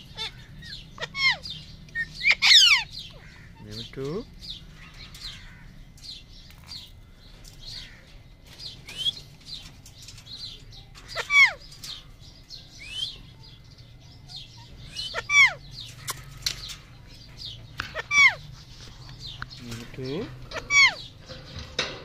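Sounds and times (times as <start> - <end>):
loud harsh parrot calls: 0.0 - 3.8, 11.1 - 11.6, 14.3 - 16.4, 17.8 - 18.5, 20.4 - 21.2
parakeets chirping: 0.0 - 22.0
rising bird whistles: 8.9 - 9.2, 12.8 - 13.2.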